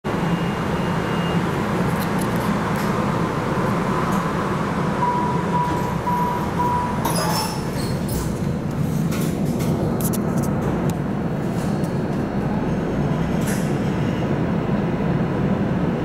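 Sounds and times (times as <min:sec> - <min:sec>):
railcar interior hum: 0:00.1 - 0:16.0
short beeps: 0:00.3 - 0:01.4, 0:05.0 - 0:07.6.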